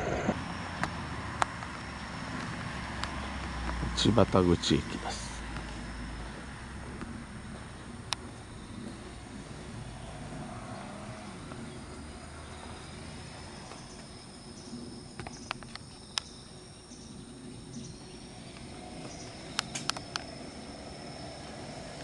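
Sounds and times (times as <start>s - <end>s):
insects trilling: 0.0s - 22.0s
low rumble: 4.9s - 21.2s
sharp clicks: 15.2s - 16.4s, 18.5s - 20.4s.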